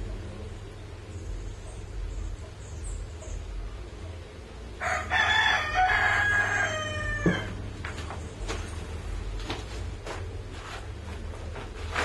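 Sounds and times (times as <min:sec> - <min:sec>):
steady low hum: 0:00.0 - 0:12.0
rooster crowing: 0:04.8 - 0:07.6.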